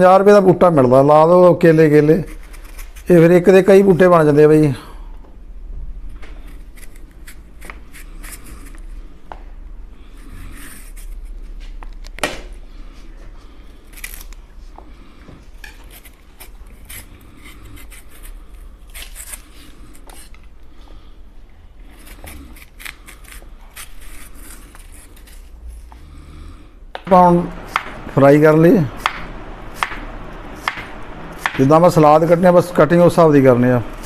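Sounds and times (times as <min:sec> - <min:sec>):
knife scraping banana skin: 0:02.1 - 0:03.3, 0:06.3 - 0:09.0, 0:10.1 - 0:11.6, 0:13.8 - 0:14.4, 0:15.6 - 0:20.5, 0:21.8 - 0:26.0.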